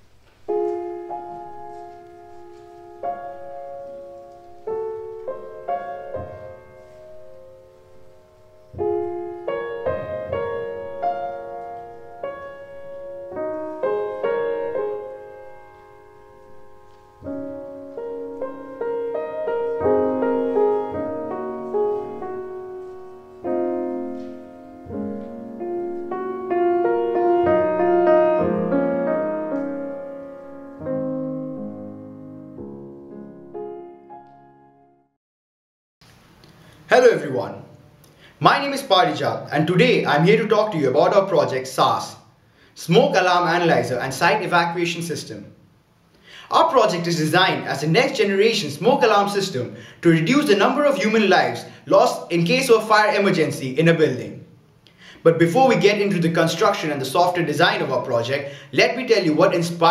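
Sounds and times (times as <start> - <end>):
slow piano music: 0.0 - 35.2.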